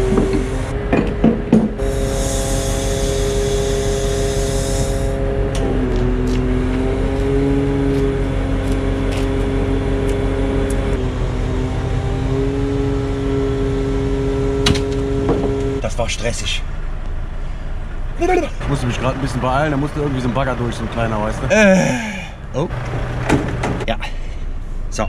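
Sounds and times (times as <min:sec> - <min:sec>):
hydraulic crane and truck engine whine: 0:00.0 - 0:15.8
hiss: 0:01.8 - 0:05.1.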